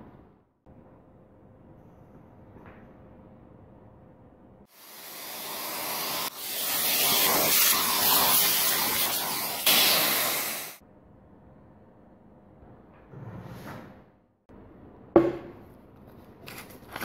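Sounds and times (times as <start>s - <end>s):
vacuum cleaner rushing hiss: 4.7s - 10.8s.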